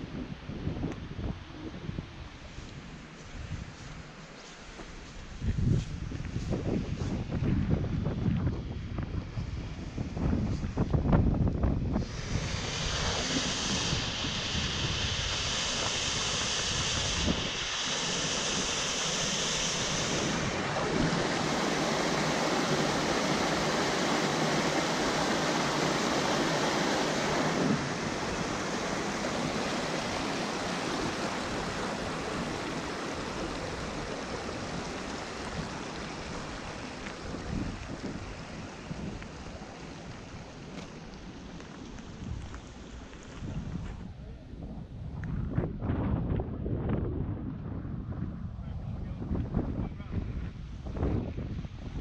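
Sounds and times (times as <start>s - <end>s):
wind buffeting microphone: 0.0s - 52.0s
stream rushing over rocks: 12.0s - 43.6s.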